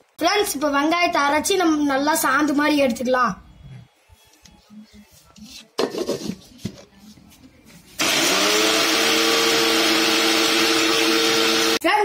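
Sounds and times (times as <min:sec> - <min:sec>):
mixer grinder motor whine: 0:08.0 - 0:11.8.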